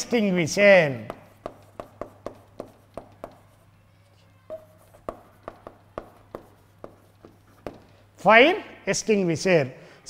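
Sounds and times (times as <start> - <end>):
chalk tapping on chalkboard: 0.8 - 3.7, 4.5 - 8.1.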